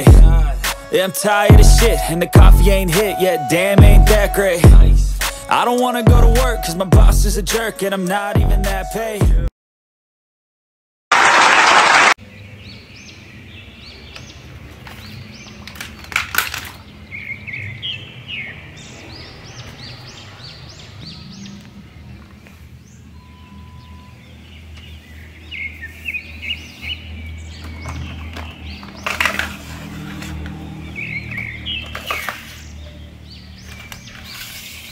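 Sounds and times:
birds chirping rising calls: 16.8 - 34.9.

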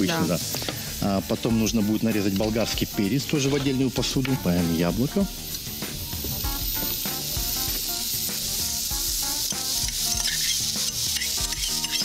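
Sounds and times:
vegetables sizzling in oil: 0.0 - 12.0
utensil clicking in pan: 9.4 - 12.0.

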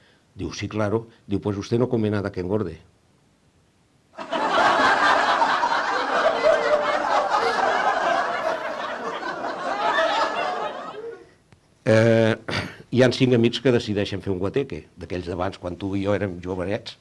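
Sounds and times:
crowd laughing: 4.2 - 11.4.

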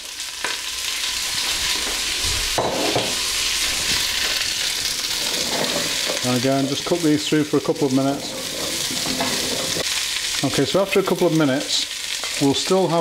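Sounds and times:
vegetables sizzling in oil: 0.0 - 13.0
wooden spoon stirring: 8.0 - 9.9.

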